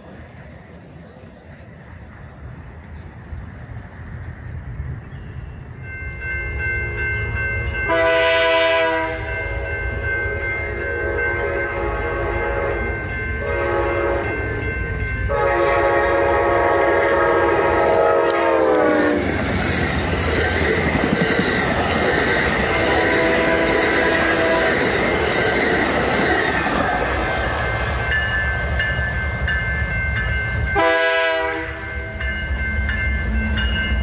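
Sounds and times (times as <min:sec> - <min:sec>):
passing train rumble and wheel clatter: 0:00.0 - 0:34.0
diesel locomotive horn blasts: 0:07.8 - 0:14.6, 0:15.2 - 0:19.3, 0:22.6 - 0:24.9, 0:30.7 - 0:32.3.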